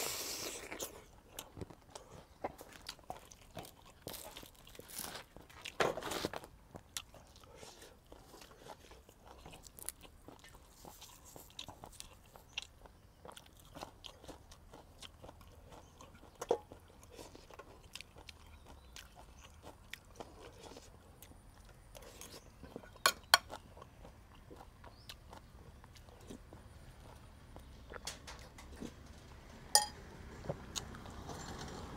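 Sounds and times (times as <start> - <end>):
person chewing and crunching food: 0.0 - 28.0.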